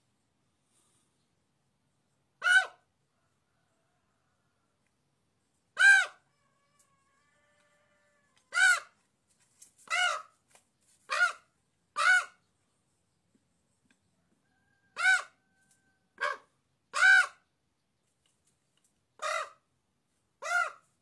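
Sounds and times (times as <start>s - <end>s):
raven cawing: 7.9s - 8.9s, 11.1s - 12.4s, 16.2s - 17.4s, 19.2s - 19.6s, 20.4s - 20.9s.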